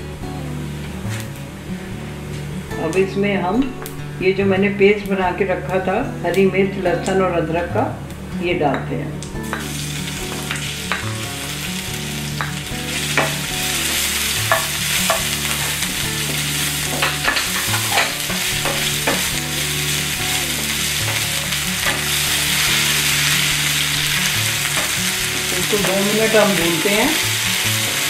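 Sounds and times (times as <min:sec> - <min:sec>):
spatula scraping and tapping pan: 0:09.4 - 0:11.2, 0:12.3 - 0:19.5
paste sizzling in oil: 0:09.4 - 0:28.0.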